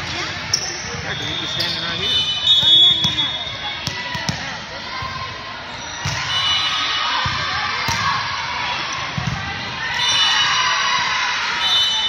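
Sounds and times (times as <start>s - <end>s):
crowd cheering and shouting: 2.6s - 12.0s.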